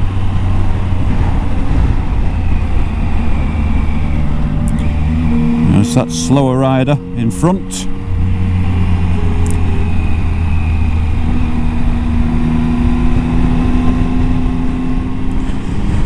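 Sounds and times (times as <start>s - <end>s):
motorcycle engine running: 0.0s - 16.0s
wind rushing: 0.0s - 16.0s.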